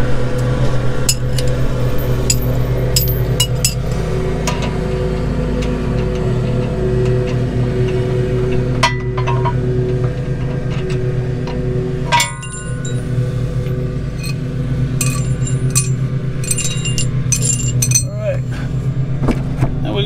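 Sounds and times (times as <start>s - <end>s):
lawn mower engine humming: 0.0s - 19.6s
wrench clinking on bolt: 1.1s - 3.8s, 12.1s - 13.1s, 14.2s - 14.4s, 15.0s - 18.4s.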